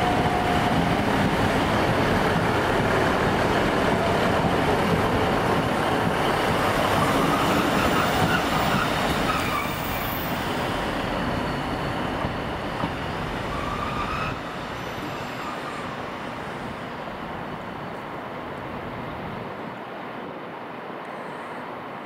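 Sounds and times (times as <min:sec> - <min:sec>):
train running on rails: 0:00.0 - 0:22.0
train wheel squeals: 0:06.8 - 0:16.2.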